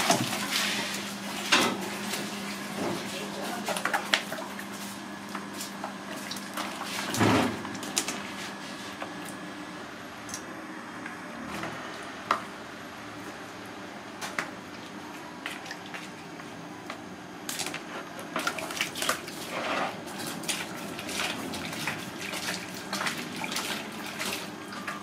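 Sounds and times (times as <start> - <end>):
water splashing in plastic basin: 0.0 - 8.2, 17.5 - 25.0.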